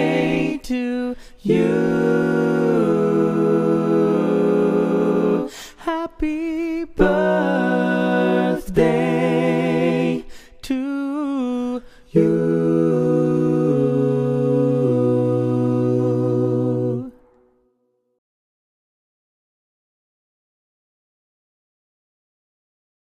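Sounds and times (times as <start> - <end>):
voices singing in harmony: 0.0 - 17.4.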